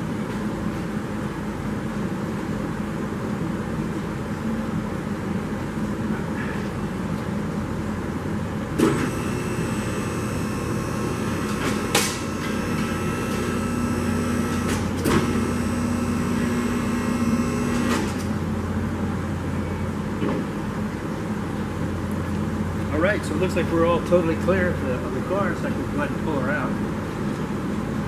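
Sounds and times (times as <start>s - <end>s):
hydraulic pump motor running: 8.8s - 18.4s.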